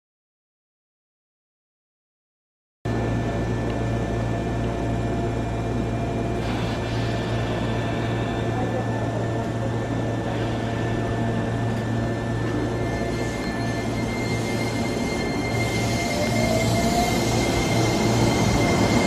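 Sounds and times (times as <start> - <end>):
electric train low hum: 2.9 - 19.0
hiss: 6.4 - 7.7
thin whine tones: 6.6 - 19.0.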